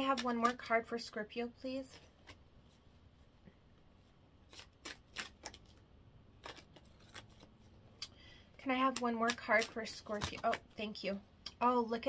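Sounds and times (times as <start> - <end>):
cards shuffling: 0.0 - 0.8, 1.8 - 2.8, 4.4 - 7.8, 8.6 - 11.0.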